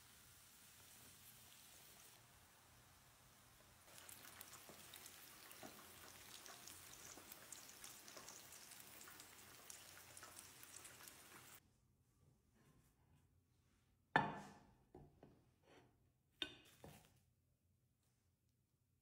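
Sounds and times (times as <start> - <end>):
hot oil sizzling: 0.0 - 11.6.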